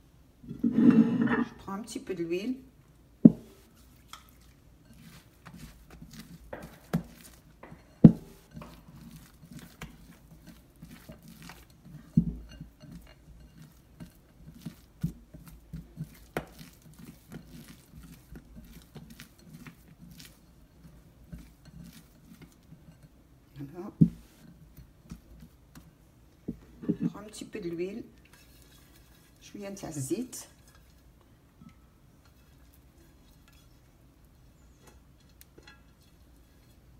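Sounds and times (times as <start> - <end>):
hands slapping dough: 3.3 - 20.4.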